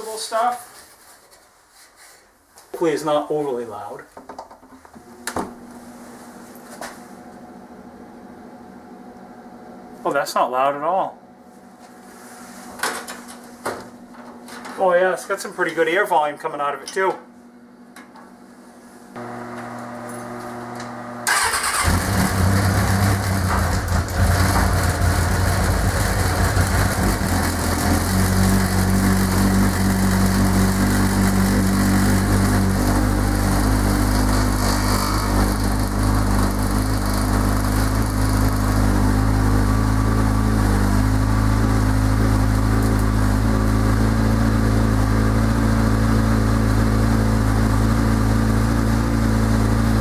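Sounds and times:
motorcycle engine cranking and idling: 0:21.2 - 0:50.0.

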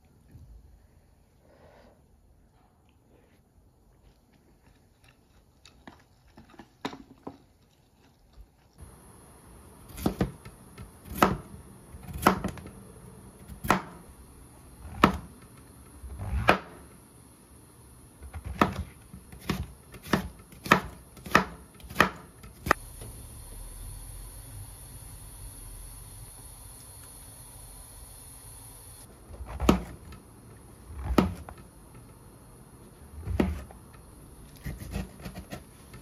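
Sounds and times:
knife chopping on cutting board: 0:09.9 - 0:12.7, 0:15.0 - 0:15.4, 0:18.3 - 0:22.8, 0:31.0 - 0:31.5.

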